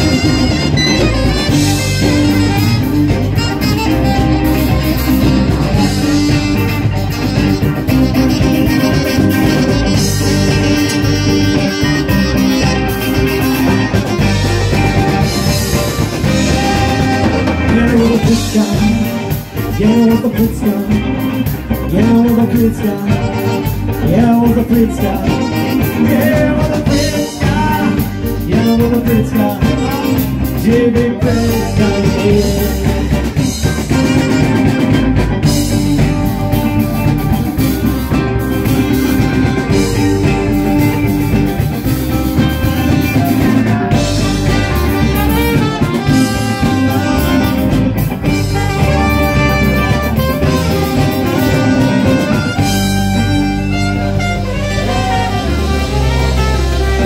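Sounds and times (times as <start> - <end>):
lead melody: 0.0 - 57.0
live rock band playing: 0.0 - 57.0.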